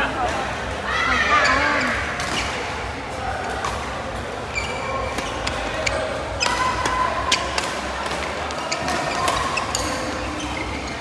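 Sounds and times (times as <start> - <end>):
shoe squeaks: 4.5 - 7.6, 8.4 - 11.0.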